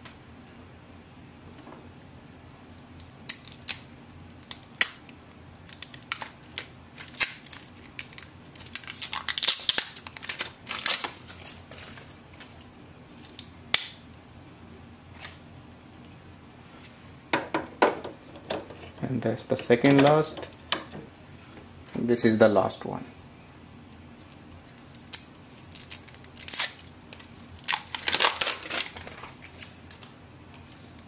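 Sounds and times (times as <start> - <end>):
plastic wrapping crinkling: 2.6 - 13.5, 24.2 - 31.0.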